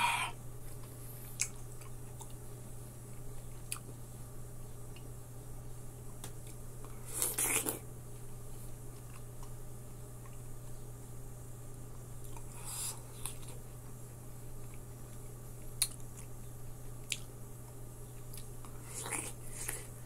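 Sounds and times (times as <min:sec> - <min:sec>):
person chewing: 0:01.2 - 0:02.4, 0:03.1 - 0:03.9, 0:06.9 - 0:07.8, 0:14.6 - 0:17.3, 0:18.2 - 0:20.0.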